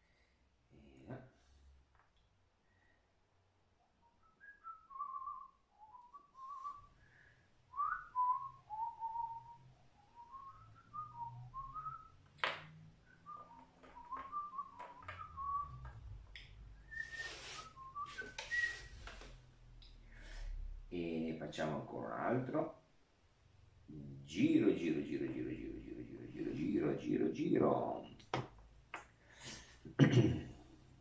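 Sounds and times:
man whistling a tune: 0:04.2 - 0:07.0, 0:07.7 - 0:12.2, 0:13.0 - 0:16.2, 0:16.8 - 0:19.0.

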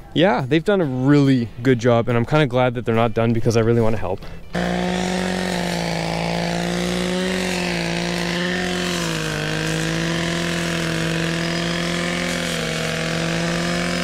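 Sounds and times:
brush cutter engine running: 0:04.5 - 0:14.0.

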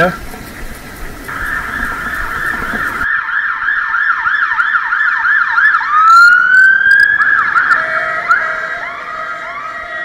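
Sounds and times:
emergency siren yelping and wailing: 0:01.3 - 0:10.0.

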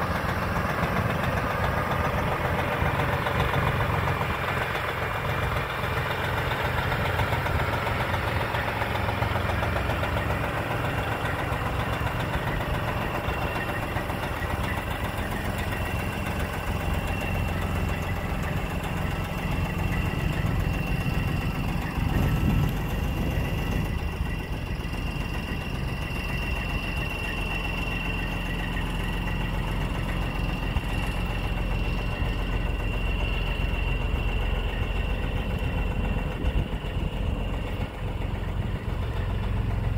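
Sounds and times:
diesel truck engine idling: 0:00.0 - 0:39.9.

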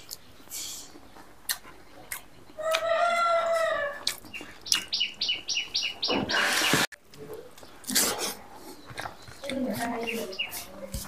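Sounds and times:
rooster crowing: 0:02.6 - 0:04.0
small bird chirping: 0:04.0 - 0:06.9, 0:08.7 - 0:10.9.

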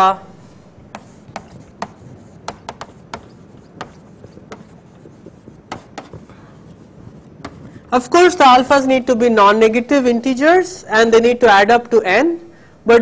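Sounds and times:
chalk tapping on chalkboard: 0:00.9 - 0:07.9.

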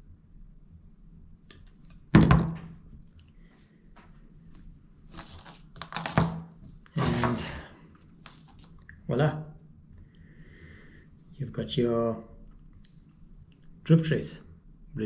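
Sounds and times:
rustling handling: 0:04.4 - 0:08.8.

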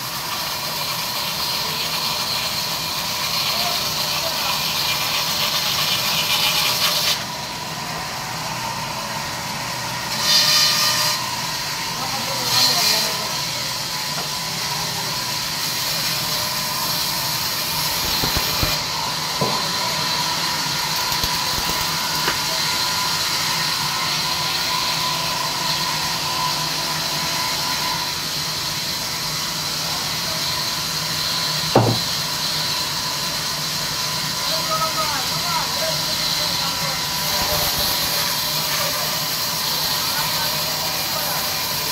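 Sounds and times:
band saw cutting through log: 0:00.0 - 0:41.9
sharp knock: 0:18.0 - 0:18.8, 0:31.8 - 0:32.1.

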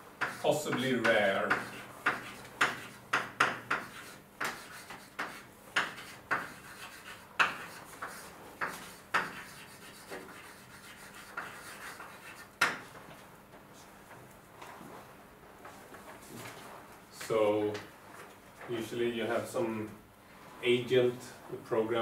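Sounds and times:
chalk tapping and scraping on blackboard: 0:00.1 - 0:13.2.

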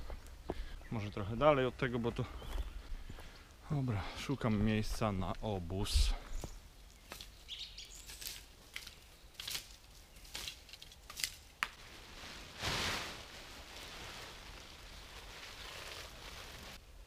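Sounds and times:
plastic tarp crinkling: 0:11.2 - 0:16.8.

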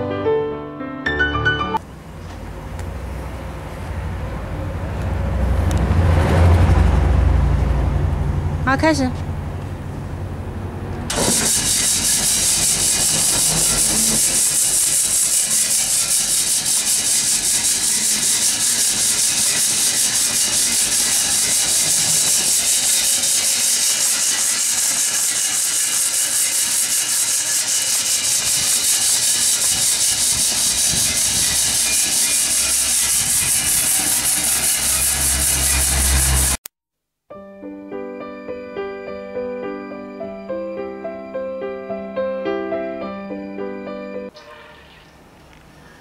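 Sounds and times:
polishing machine motor rattling: 0:11.1 - 0:36.6.

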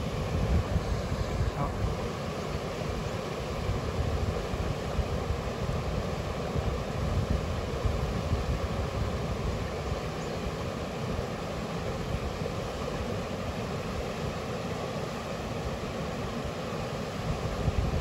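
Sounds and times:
wind buffeting microphone: 0:00.0 - 0:02.1, 0:17.2 - 0:18.0
river water rushing: 0:00.0 - 0:18.0.

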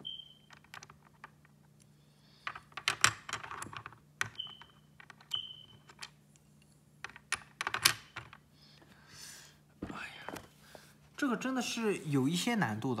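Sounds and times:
plastic puzzle pieces clicking: 0:02.4 - 0:06.2, 0:07.0 - 0:08.4.

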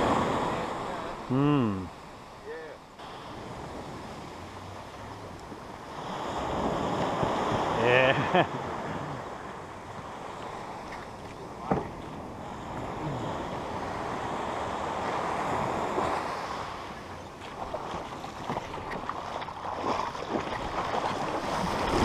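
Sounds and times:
waves washing up beach: 0:00.0 - 0:22.0
light knocks and splashes: 0:10.8 - 0:12.2, 0:17.4 - 0:22.0.

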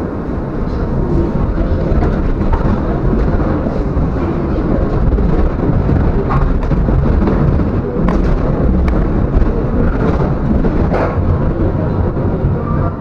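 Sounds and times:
tram rumbling on track: 0:00.0 - 0:13.0
wheels clacking over rail points: 0:00.7 - 0:12.6.

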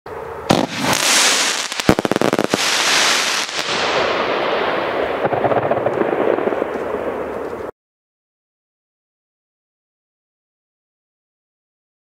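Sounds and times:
firework fountain hissing: 0:00.5 - 0:05.0
sharp crackling cracks: 0:00.5 - 0:07.7.

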